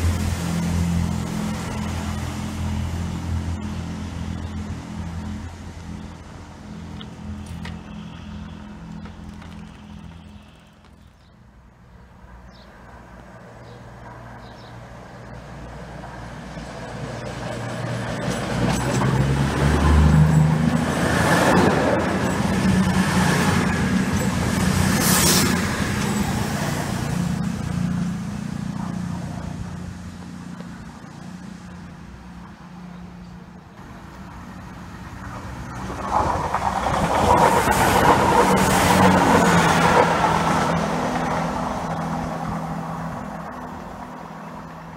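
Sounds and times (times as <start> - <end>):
diesel train passing: 0.0 - 44.9
diesel train engine arriving: 16.2 - 44.8.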